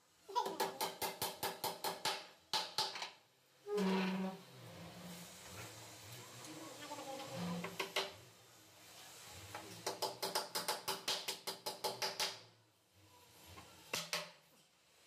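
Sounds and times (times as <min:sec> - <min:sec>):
hammer driving a nail: 0:00.6 - 0:03.1, 0:09.8 - 0:12.4.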